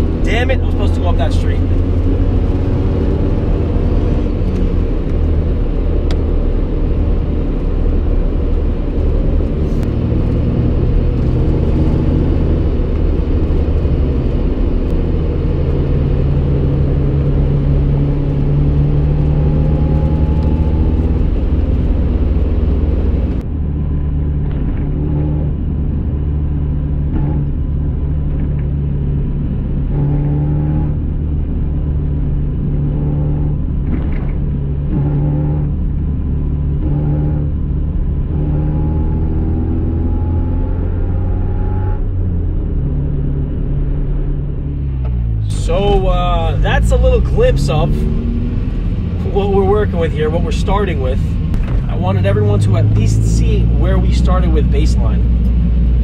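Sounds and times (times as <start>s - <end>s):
car engine accelerating: 0.0s - 56.0s
road rumble: 0.0s - 56.0s
interior rattles and clicks: 33.6s - 35.2s.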